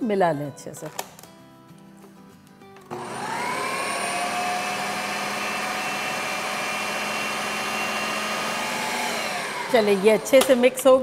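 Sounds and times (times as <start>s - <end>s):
blender motor running: 2.9s - 10.8s.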